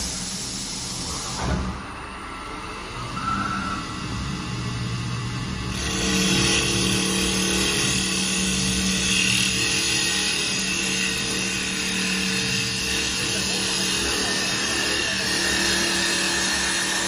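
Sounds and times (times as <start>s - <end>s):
hiss of tooling cutting wood: 0.0s - 1.7s, 5.6s - 17.0s
lathe motor hum: 0.0s - 17.0s
motor whine: 0.0s - 17.0s.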